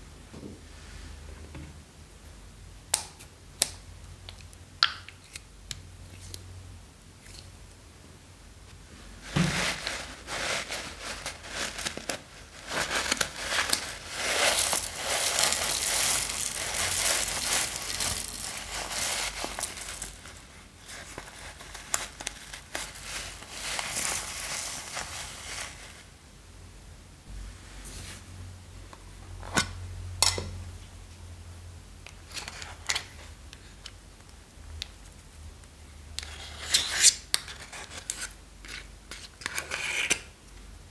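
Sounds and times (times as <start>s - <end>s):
foam beads spilling into glass bowl: 12.9s - 20.3s.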